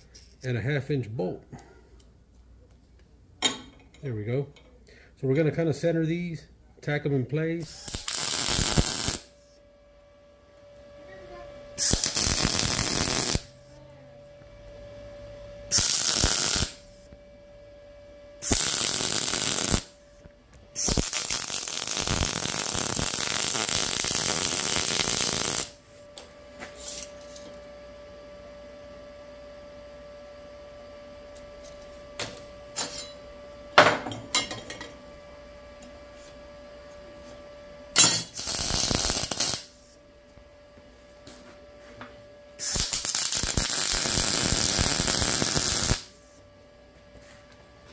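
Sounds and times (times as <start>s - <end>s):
steady hum: 0.0s - 47.9s
welding arc crackling: 7.6s - 9.5s, 11.8s - 13.6s, 15.7s - 16.9s, 18.4s - 20.0s, 20.7s - 25.8s, 38.0s - 39.9s, 42.6s - 46.2s.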